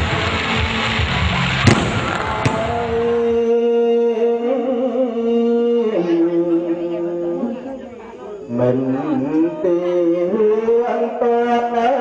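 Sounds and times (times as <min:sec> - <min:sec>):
fireworks bangs: 0:00.0 - 0:03.5
fireworks crackling: 0:00.0 - 0:03.6.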